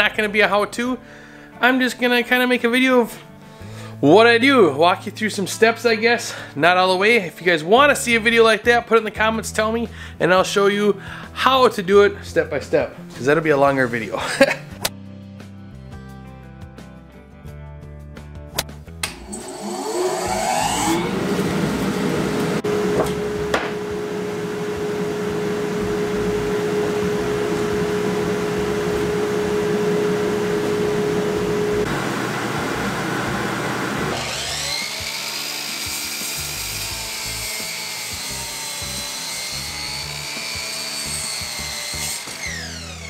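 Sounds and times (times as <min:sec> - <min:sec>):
power saw cutting wood: 0:19.0 - 0:43.0
miter saw blade whine: 0:19.1 - 0:43.0.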